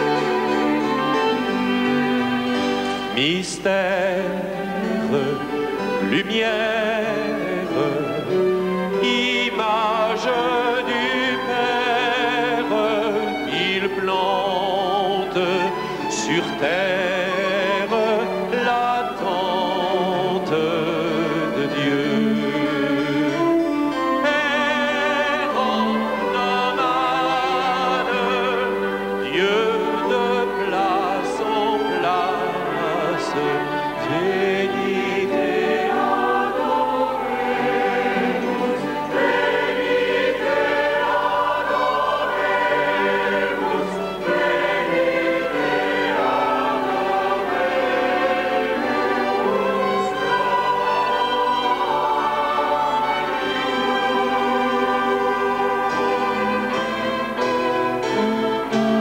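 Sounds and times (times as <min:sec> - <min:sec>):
choir singing: 0:00.0 - 0:59.0
musical accompaniment: 0:00.0 - 0:59.0
man singing operatically: 0:03.1 - 0:40.6.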